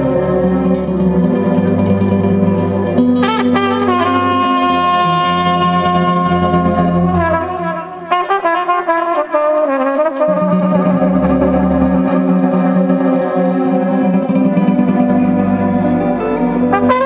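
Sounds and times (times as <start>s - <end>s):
bass line: 0.0s - 8.0s
electronic keyboard accompaniment: 0.0s - 17.0s
trumpet through a pa: 3.0s - 12.2s, 16.6s - 17.0s.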